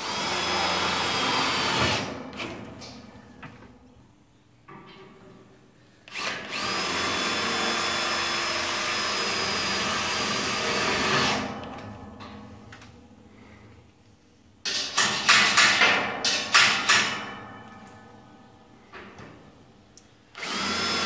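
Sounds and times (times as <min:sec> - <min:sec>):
electric drill whining: 0:20.4 - 0:21.0.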